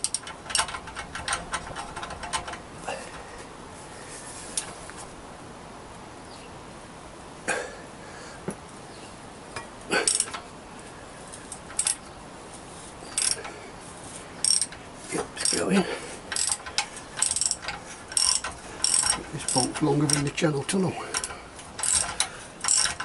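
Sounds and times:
socket ratchet clicking: 0.0s - 2.6s, 13.2s - 13.4s, 14.4s - 14.8s, 16.3s - 20.3s, 21.2s - 23.0s.

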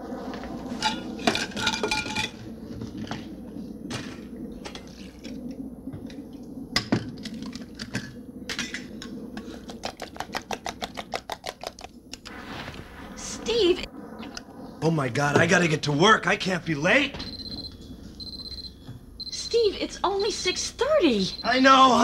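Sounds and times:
kitchenware clinking: 0.8s - 2.4s.

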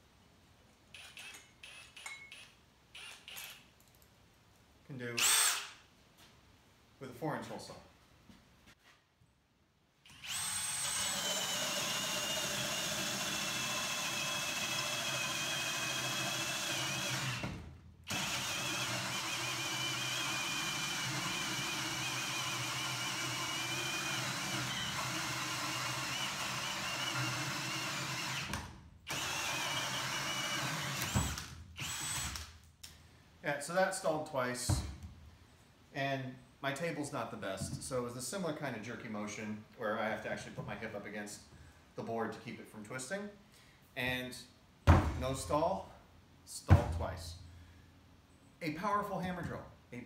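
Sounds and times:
cordless drill whining under load: 0.9s - 3.6s, 5.2s - 5.8s, 10.1s - 32.5s.

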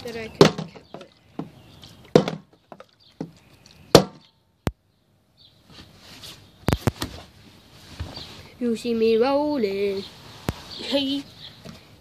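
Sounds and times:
plastic bottle knocking on wooden deck: 0.4s - 4.3s.

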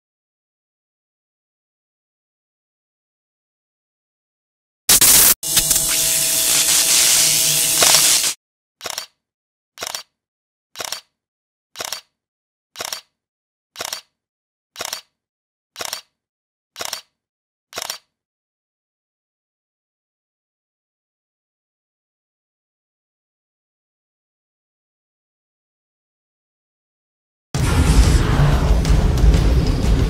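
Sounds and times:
loud electric buzz: 4.9s - 8.4s
camera shutter double clicks: 7.7s - 9.1s, 9.8s - 10.1s, 10.8s - 11.1s, 11.8s - 12.1s, 13.8s - 14.1s, 14.8s - 15.1s, 15.8s - 16.1s, 16.8s - 17.1s, 17.8s - 18.1s.

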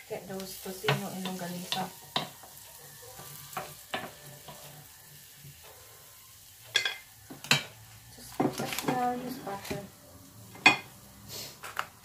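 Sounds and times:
light sizzle: 0.0s - 12.0s
spoon stirring onion in skillet: 0.1s - 9.9s
spoon knocking: 0.9s - 4.7s.

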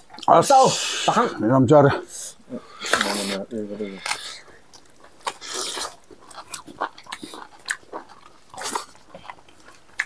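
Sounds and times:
chewing and lip-smacking: 2.7s - 10.0s.

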